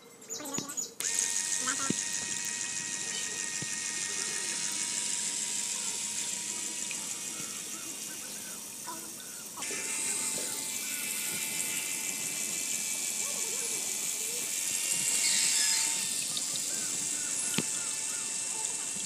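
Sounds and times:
faint motor whine: 0.0 - 19.0.

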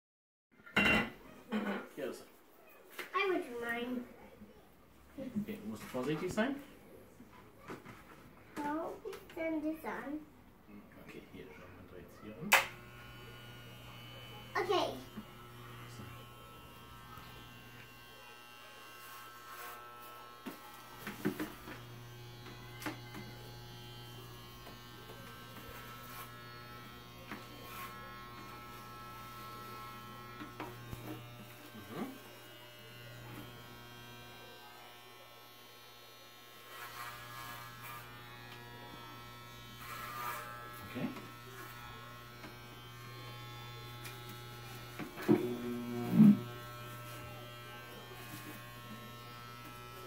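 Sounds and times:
electric hair clippers buzzing: 12.3 - 50.0.

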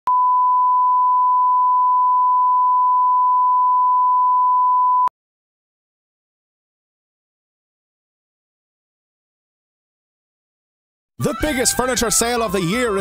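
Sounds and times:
steady sine test tone: 0.1 - 5.1.

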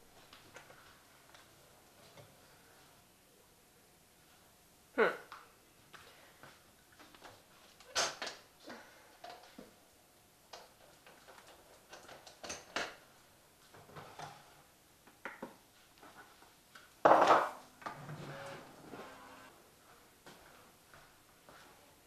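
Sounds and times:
loud clatter of dishes: 17.1 - 17.6.

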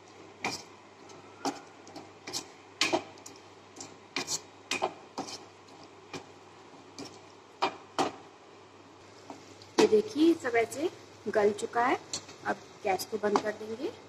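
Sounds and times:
wooden spatula scraping a pan: 0.4 - 8.2.

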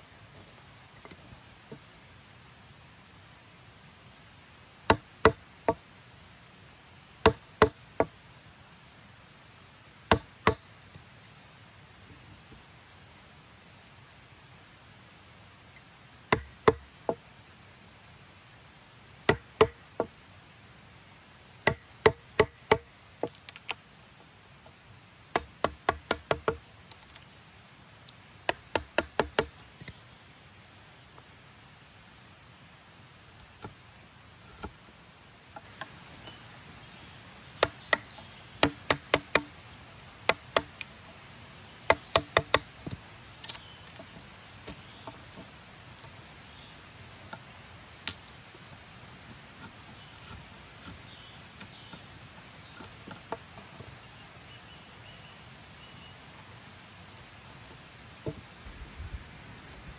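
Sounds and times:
chisel paring wood: 16.3 - 16.8, 28.5 - 29.6, 37.6 - 39.5, 40.3 - 40.8, 41.9 - 43.0.

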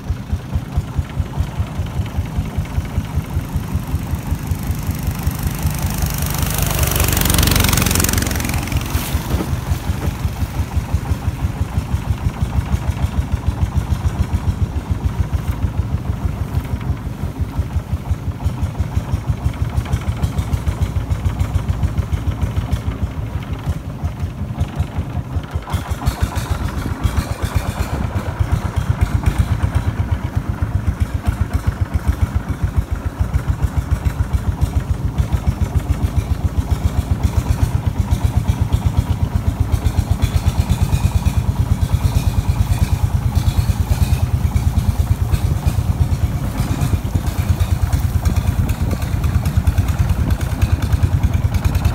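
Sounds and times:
boat engine chugging: 0.0 - 51.9
loud rushing noise: 3.1 - 11.7.

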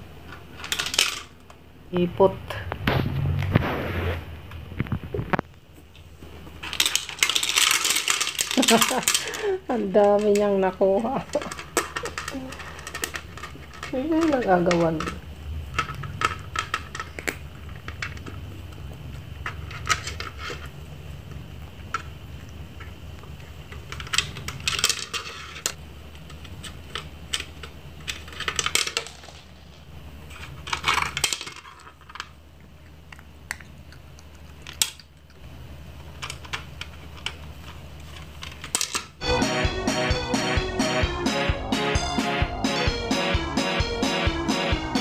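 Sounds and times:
kibble rattling on plastic: 0.2 - 1.6, 6.5 - 20.8, 21.8 - 35.4.

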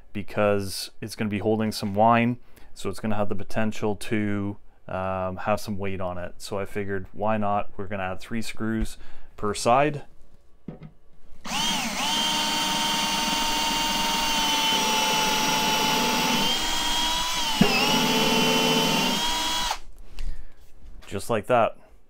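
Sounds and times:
drill click: 11.4 - 19.8
cordless drill whining: 11.4 - 19.9.

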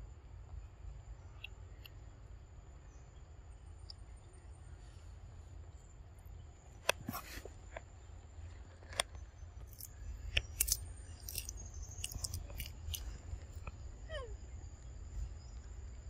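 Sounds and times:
monkey chewing crisp leaf: 9.7 - 13.7.

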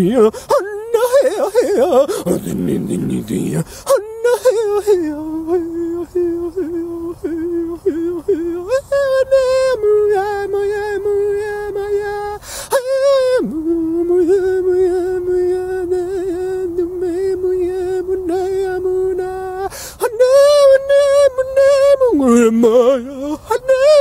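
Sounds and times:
man chanting held notes: 0.0 - 24.0
man breathing in: 0.3 - 0.5, 3.6 - 3.9, 12.4 - 12.8, 19.7 - 20.0.

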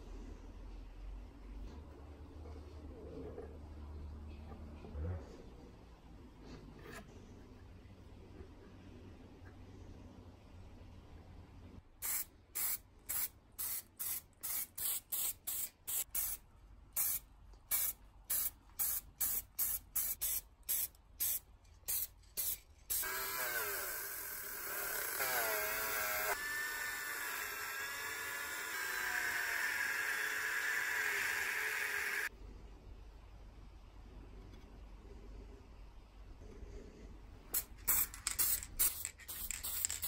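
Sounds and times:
spray paint can spraying: 12.0 - 16.4, 17.0 - 23.1, 37.6 - 40.0
rotary tool wire brush whine: 23.0 - 32.3.

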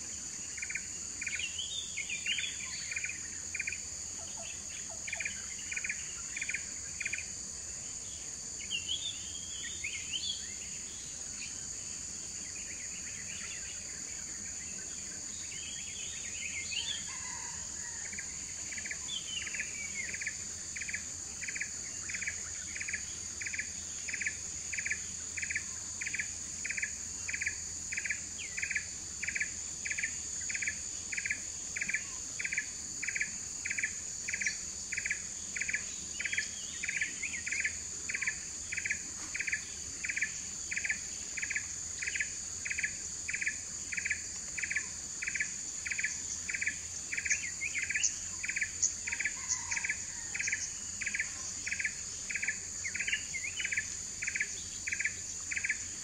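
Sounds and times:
short insect chirp: 0.0 - 56.0
bird calls: 35.6 - 55.8.

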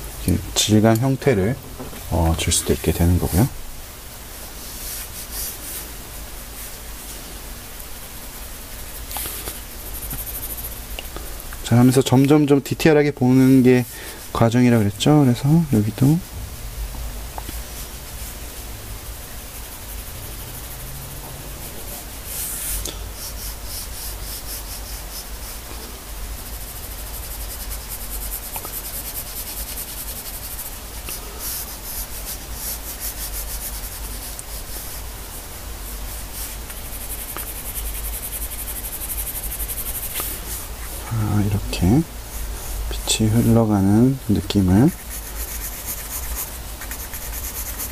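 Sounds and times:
pencil scratching on paper: 8.8 - 10.9, 19.3 - 22.6, 23.2 - 25.7, 26.3 - 35.1, 36.1 - 40.6, 44.4 - 47.9.

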